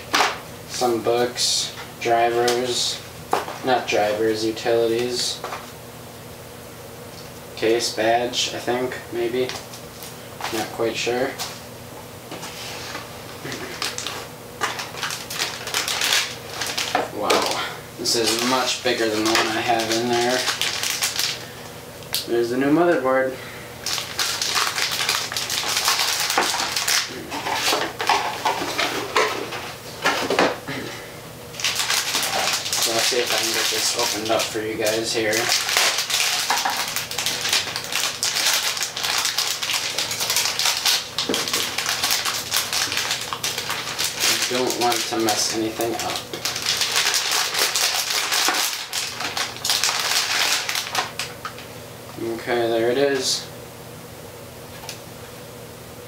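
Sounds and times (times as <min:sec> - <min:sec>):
plastic bag crinkling: 0:13.4 - 0:21.6, 0:23.8 - 0:29.6, 0:31.5 - 0:51.7.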